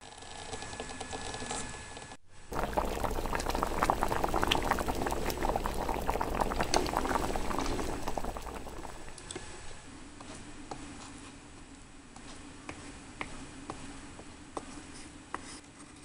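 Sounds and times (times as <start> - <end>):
soup bubbling and popping: 2.5 - 9.2.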